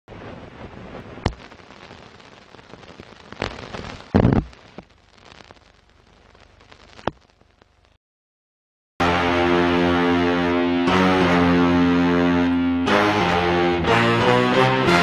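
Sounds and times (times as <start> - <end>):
record surface crackle and hiss: 0.1 - 8.0
sharp pops: 1.2 - 7.9.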